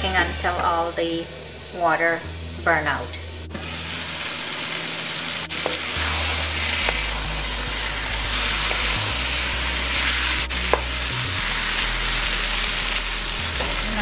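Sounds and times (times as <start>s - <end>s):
meat sizzling in a wok: 3.5s - 14.0s
wooden spatula scraping: 5.6s - 10.9s.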